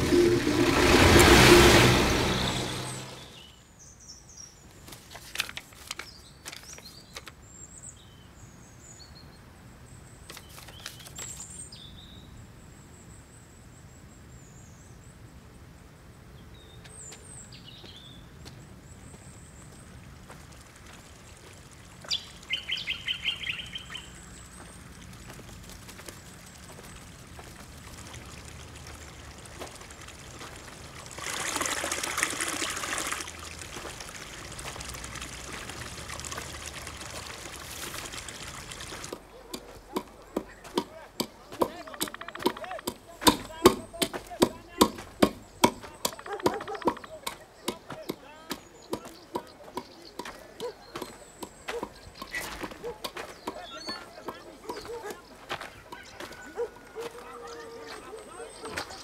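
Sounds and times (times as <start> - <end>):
truck engine driving off: 0.0 - 3.5
high bird chirps: 2.3 - 3.6, 22.0 - 24.7, 41.4 - 56.6.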